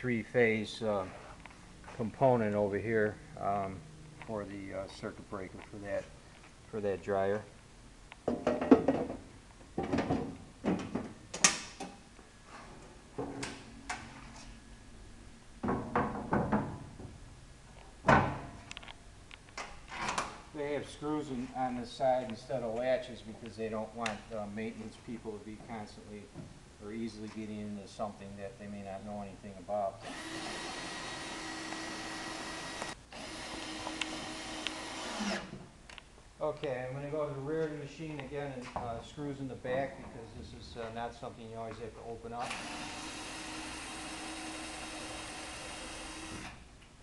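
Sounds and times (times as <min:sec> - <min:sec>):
cordless drill motor whine: 0:30.0 - 0:35.5, 0:42.5 - 0:46.6.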